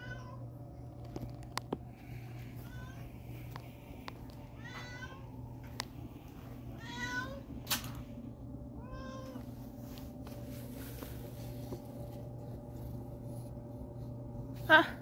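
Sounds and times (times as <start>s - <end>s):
cat meowing: 6.8s - 7.4s, 8.8s - 9.4s.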